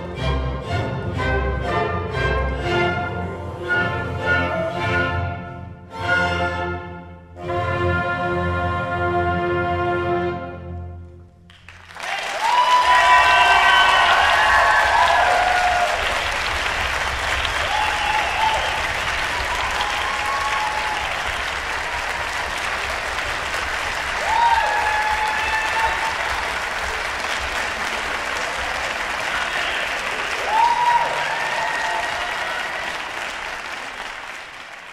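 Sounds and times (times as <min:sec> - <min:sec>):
audience applauding: 0:11.5 - 0:34.9.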